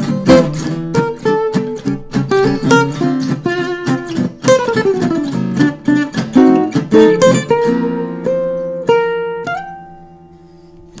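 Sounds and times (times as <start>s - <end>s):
guitar being plucked: 0.0s - 11.0s.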